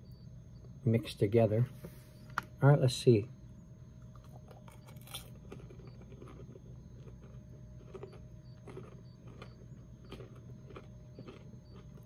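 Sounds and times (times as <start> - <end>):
steady low hum: 0.0 - 12.0
person chewing popcorn crunching: 4.0 - 12.0.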